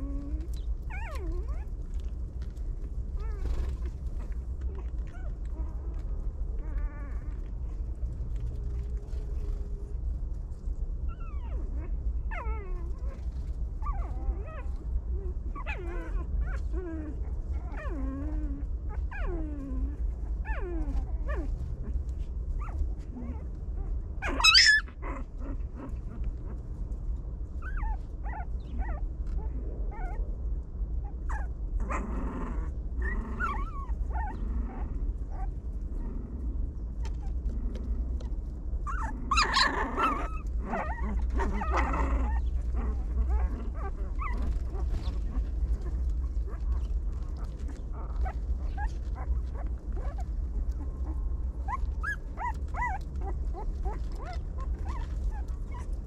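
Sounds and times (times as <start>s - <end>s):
puppy yelping: 0.0s - 1.7s, 15.3s - 22.0s, 22.6s - 26.5s, 27.6s - 30.2s, 31.0s - 36.1s, 38.2s - 56.0s
puppies whining and whimpering: 0.0s - 2.0s, 3.1s - 9.9s, 11.0s - 26.7s, 27.5s - 30.3s, 31.0s - 56.0s
steady low hum: 0.0s - 56.0s.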